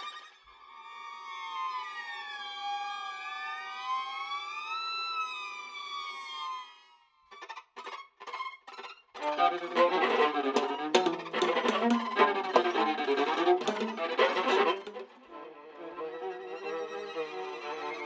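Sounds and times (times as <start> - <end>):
short choppy viola strokes: 9.2 - 15.2
bowed viola glissandi: 9.2 - 18.0.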